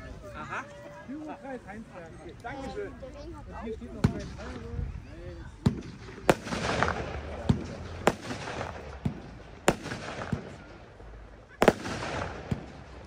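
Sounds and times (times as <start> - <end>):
firework bangs: 5.6 - 11.0, 11.6 - 13.0.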